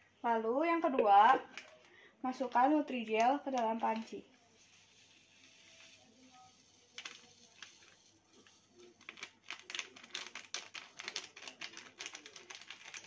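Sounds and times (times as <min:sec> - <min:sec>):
packet crinkling: 0:01.5 - 0:02.0, 0:06.6 - 0:13.0.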